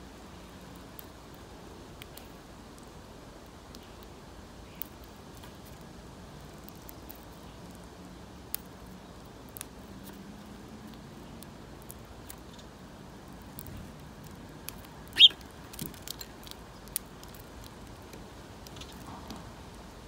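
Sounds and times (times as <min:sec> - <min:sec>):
loud high bird chirp: 0:15.2 - 0:15.4.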